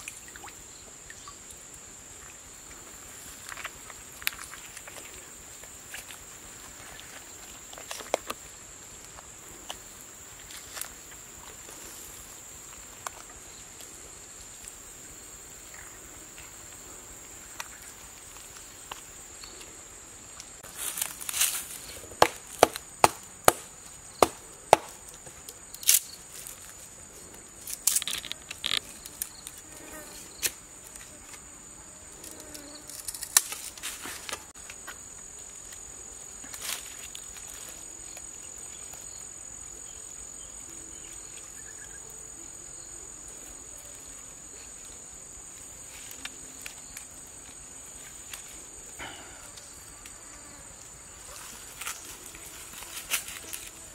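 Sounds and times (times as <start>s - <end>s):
rustling in dry leaves: 3.0s - 30.5s, 36.4s - 41.8s, 43.3s - 53.9s
sharp chopping knocks: 22.2s - 25.0s.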